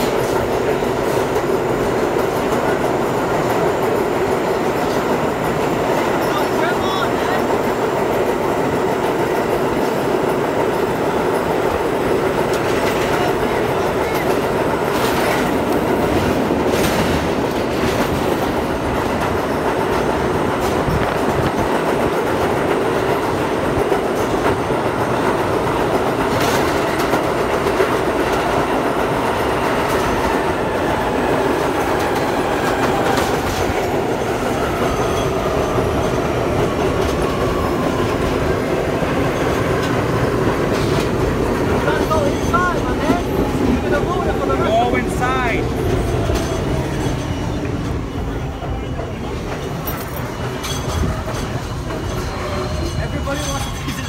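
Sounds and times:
train wheels roaring on rails: 0.0s - 54.0s
wheels clacking over rail joints: 0.0s - 54.0s
train brakes whining: 28.0s - 54.0s.

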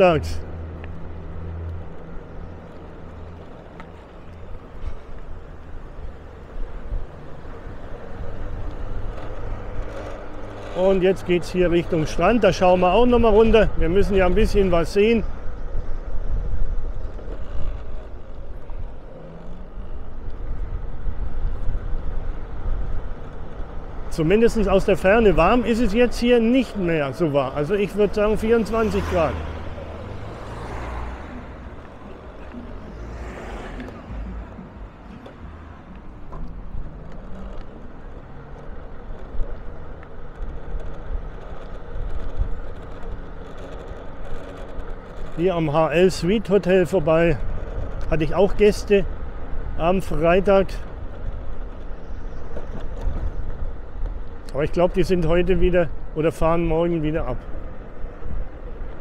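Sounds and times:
vehicle engine and road noise: 0.0s - 59.0s
wind rumble on microphone: 13.0s - 26.6s, 27.9s - 56.2s.

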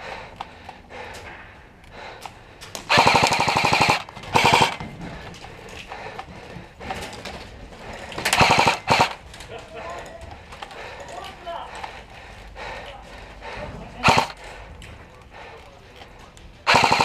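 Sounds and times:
airsoft gun firing bursts: 2.8s - 4.9s, 8.2s - 9.2s, 14.0s - 14.4s, 16.6s - 17.0s.

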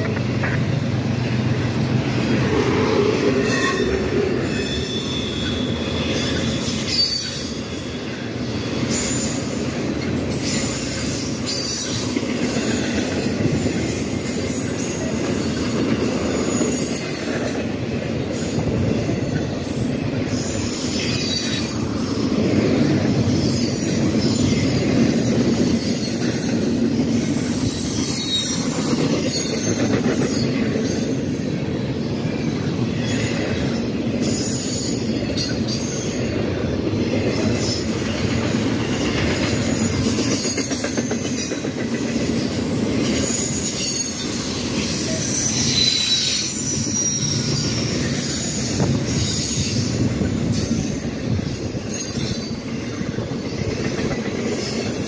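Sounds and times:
train wheels rumbling on rails: 0.0s - 55.0s
high-pitched wheel squeals: 3.3s - 9.6s, 27.4s - 31.0s, 43.1s - 50.0s.

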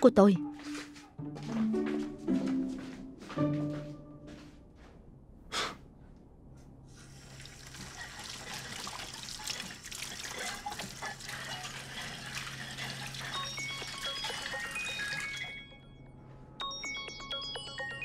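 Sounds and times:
tap water running into sink: 7.1s - 15.4s.

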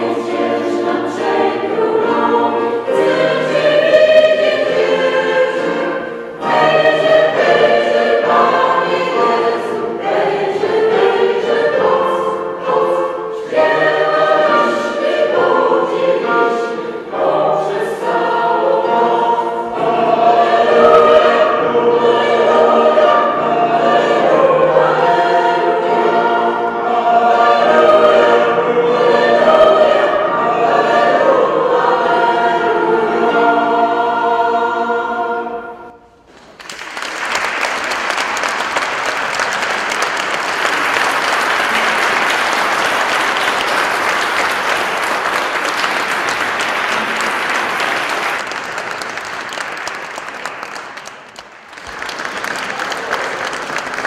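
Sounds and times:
mixed choir singing a carol: 0.0s - 36.2s, 37.7s - 51.2s
audience applause: 36.3s - 54.0s.

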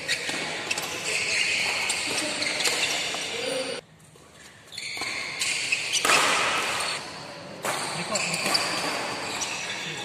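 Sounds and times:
sports hall din: 0.0s - 3.8s, 4.8s - 10.0s
racket hitting shuttlecock: 5.0s - 7.0s, 7.6s - 9.2s.

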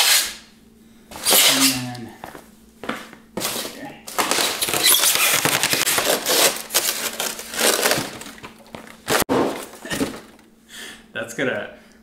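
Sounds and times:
styrofoam squeaking and crackling: 1.2s - 1.9s, 4.1s - 8.4s.

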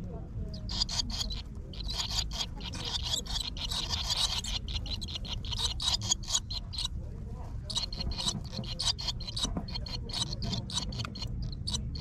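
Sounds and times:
low steady rumble: 0.0s - 12.0s
nestlings chirping: 0.0s - 12.0s.

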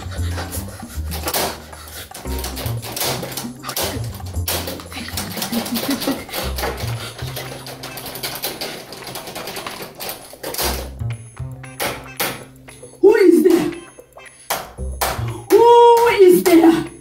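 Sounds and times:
background music with low bass: 0.0s - 7.8s, 10.5s - 17.0s
rapid clicking and rattling: 0.0s - 12.8s.

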